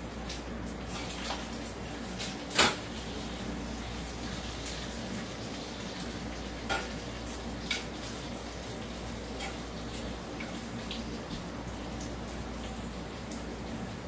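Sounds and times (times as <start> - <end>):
ground beef sizzling in a skillet: 0.9 - 11.3.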